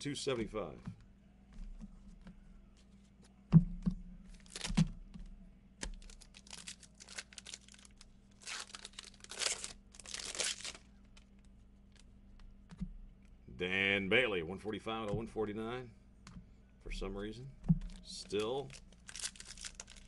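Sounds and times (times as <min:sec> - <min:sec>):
foil pack tearing and crinkling: 0:06.0 - 0:10.9, 0:18.3 - 0:20.0.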